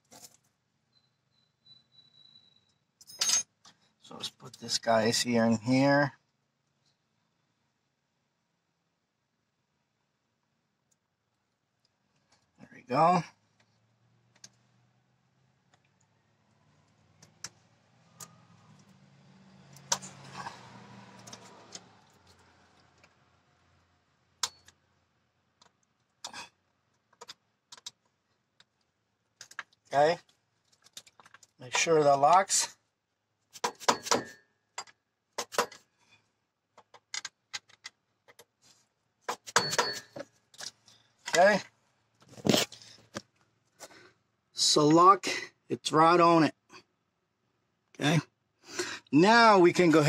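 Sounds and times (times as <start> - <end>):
low vehicle hum: 16.2 - 24.4.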